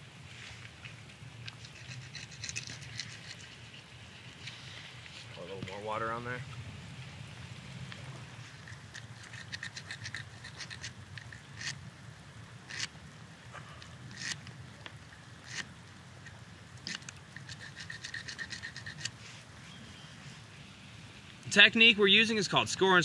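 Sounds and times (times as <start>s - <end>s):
blade rasping on antler: 1.5s - 4.6s, 8.5s - 11.8s, 12.7s - 12.9s, 14.1s - 14.4s, 15.4s - 15.7s, 16.8s - 19.2s.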